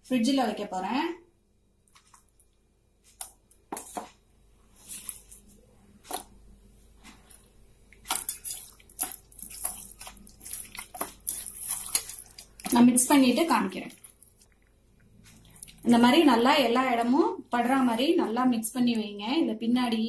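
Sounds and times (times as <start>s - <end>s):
hand squelching wet paste: 8.0s - 12.8s.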